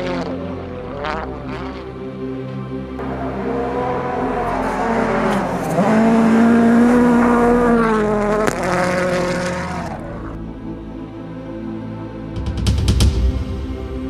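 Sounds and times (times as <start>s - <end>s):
rally car engine under hard throttle: 0.0s - 2.2s, 3.0s - 10.4s
sharp exhaust cracks: 3.0s - 10.4s.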